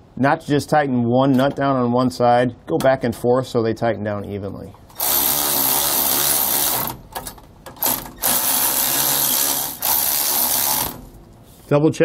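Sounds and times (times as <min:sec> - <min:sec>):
electric ratchet motor whining: 0:04.9 - 0:07.1, 0:07.8 - 0:11.2.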